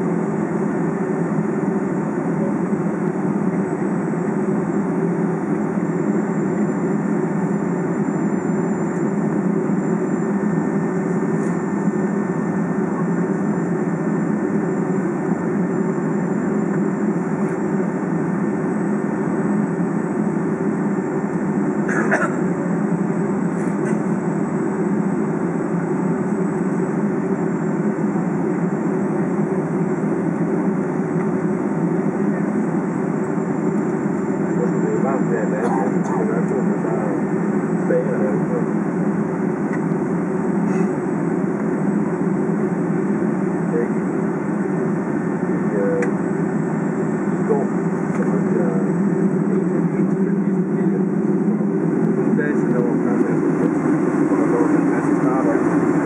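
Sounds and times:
airplane cabin rumble: 0:00.0 - 0:56.0.

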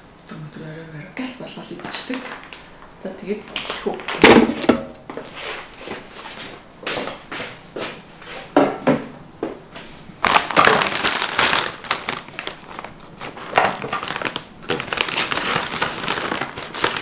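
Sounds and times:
plastic bag crinkling: 0:01.8 - 0:02.7, 0:03.4 - 0:04.8, 0:10.2 - 0:17.0
scissors cutting plastic bag: 0:10.2 - 0:17.0.

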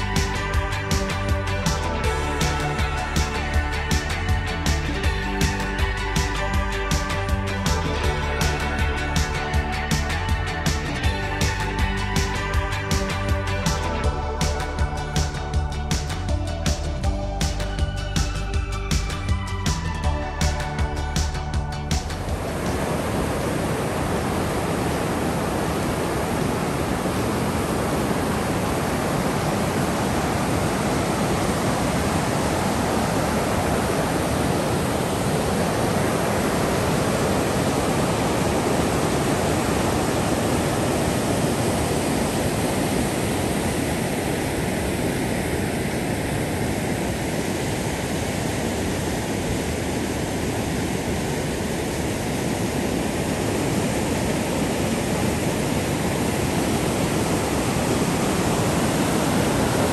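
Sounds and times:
river rapids rushing: 0:22.2 - 0:59.9.

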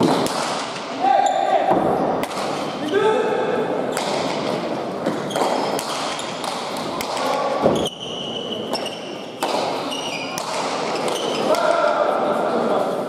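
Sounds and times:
shoes squeaking on court floor: 0:01.2 - 0:01.7, 0:03.9 - 0:11.6.

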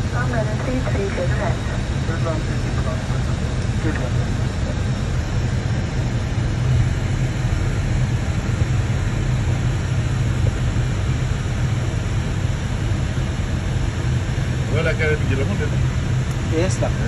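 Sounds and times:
airliner cockpit engine roar: 0:00.0 - 0:17.0.

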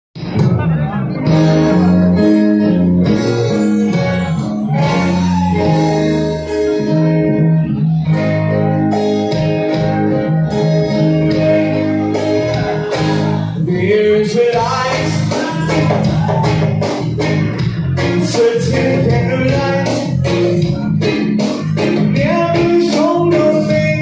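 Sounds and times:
live band playing: 0:00.2 - 0:24.0
person singing: 0:03.5 - 0:08.2, 0:10.9 - 0:17.1, 0:18.0 - 0:21.0, 0:21.6 - 0:24.0.

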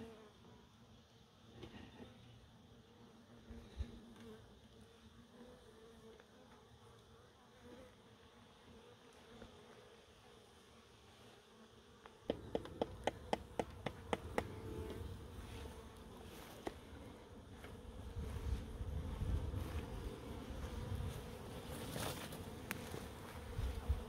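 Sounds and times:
bees buzzing: 0:02.1 - 0:24.0
sharp knocks: 0:12.3 - 0:14.5.

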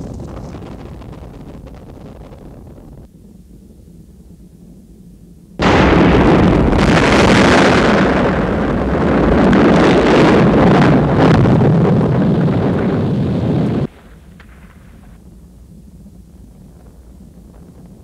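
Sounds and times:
explosion with crackling rush: 0:00.0 - 0:03.1, 0:05.6 - 0:18.0
faint low hum: 0:00.0 - 0:09.2, 0:13.9 - 0:18.0.

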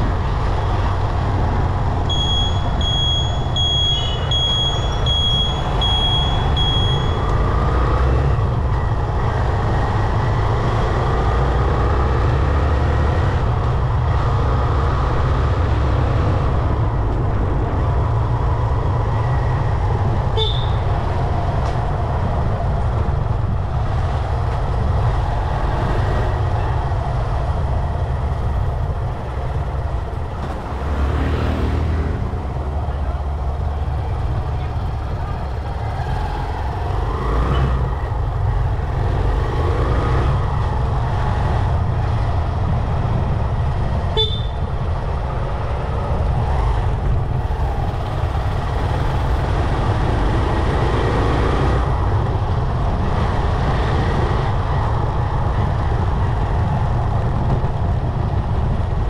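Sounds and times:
passing vehicles: 0:00.0 - 0:59.0
road rumble from motorbike: 0:00.0 - 0:59.0
high-pitched electronic beep: 0:02.1 - 0:07.2.

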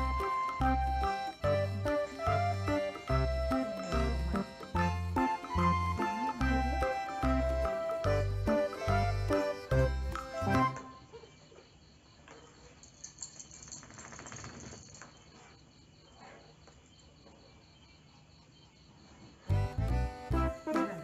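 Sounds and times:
background music: 0:00.0 - 0:11.0, 0:19.5 - 0:21.0
crickets chirping: 0:10.7 - 0:21.0.

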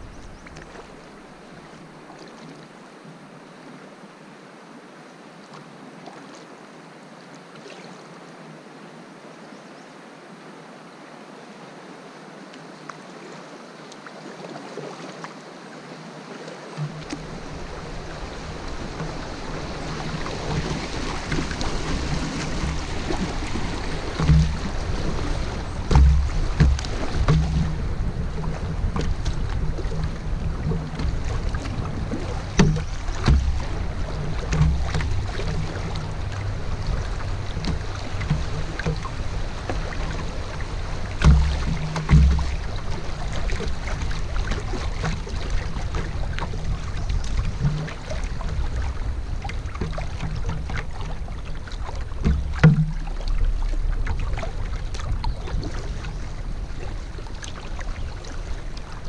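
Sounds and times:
river water lapping around canoe: 0:00.0 - 0:59.0
low rumbling: 0:16.8 - 0:59.0
sharp knocks: 0:24.2 - 0:24.8, 0:25.8 - 0:27.8, 0:32.5 - 0:33.7, 0:41.2 - 0:42.6, 0:52.2 - 0:53.0.

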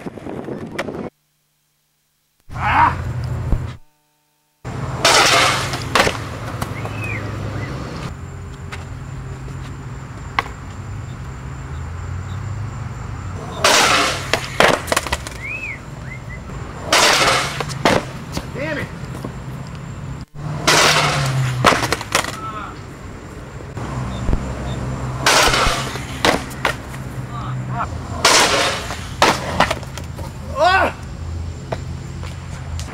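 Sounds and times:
skateboard wheels rolling on concrete: 0:00.0 - 0:01.2, 0:04.7 - 0:32.9
skateboard clacking on ground: 0:05.0 - 0:07.2, 0:13.6 - 0:15.5, 0:16.8 - 0:19.4, 0:20.6 - 0:22.7, 0:25.2 - 0:27.1, 0:28.1 - 0:30.5.

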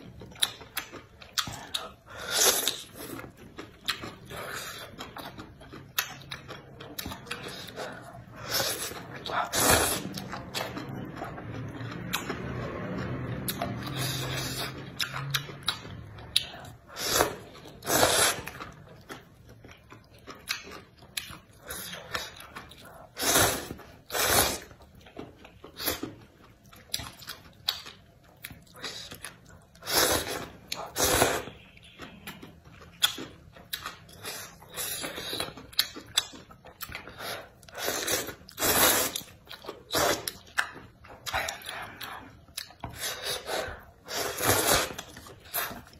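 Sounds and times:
chewing and wet mouth sounds: 0:00.0 - 0:45.9
noodles being slurped: 0:07.3 - 0:11.6, 0:16.8 - 0:18.8, 0:21.6 - 0:24.8, 0:28.7 - 0:31.7, 0:37.1 - 0:40.6, 0:42.9 - 0:45.9.

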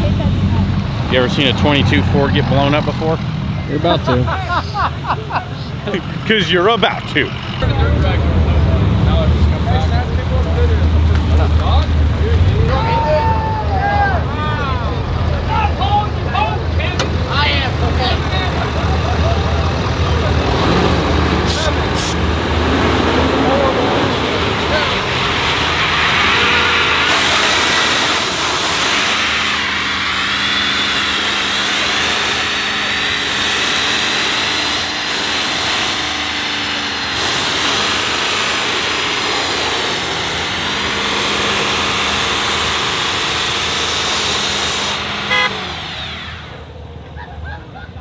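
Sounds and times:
truck engine revving high: 0:00.0 - 0:48.0
nitrous hissing: 0:17.0 - 0:46.7.

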